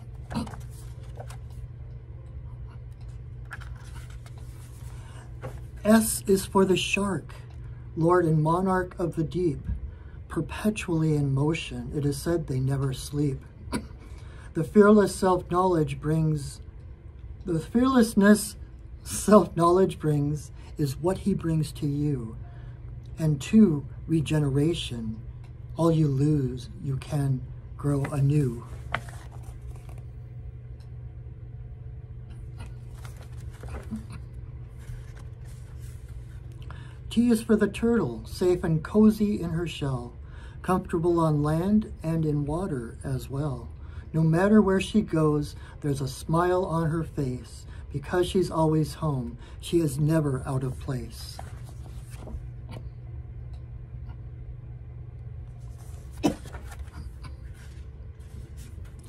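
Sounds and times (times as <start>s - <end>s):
paper pages turning: 0.0s - 1.8s, 2.8s - 7.5s, 27.8s - 30.2s, 32.3s - 36.6s, 50.6s - 52.8s, 55.5s - 59.0s
steady low hum: 0.0s - 59.0s.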